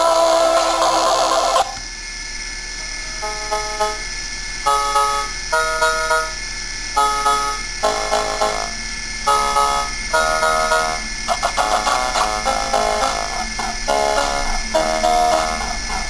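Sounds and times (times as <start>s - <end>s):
steady hum: 0.0s - 16.0s
chiptune music: 9.3s - 16.0s.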